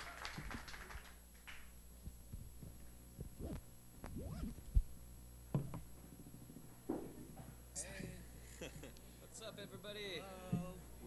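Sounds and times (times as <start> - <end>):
low hum: 1.7 - 9.2.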